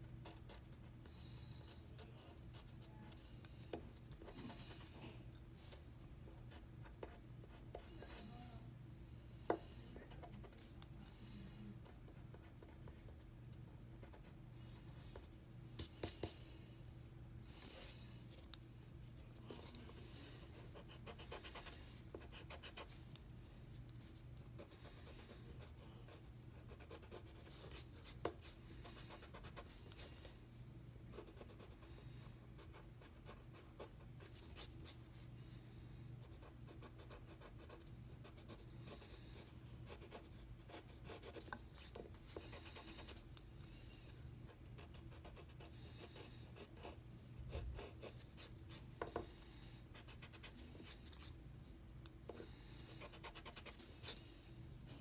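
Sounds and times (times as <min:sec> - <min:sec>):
pencil scratching on paper: 0:19.5 - 0:23.1, 0:24.0 - 0:30.1, 0:36.3 - 0:43.2, 0:44.6 - 0:49.3, 0:52.3 - 0:54.2.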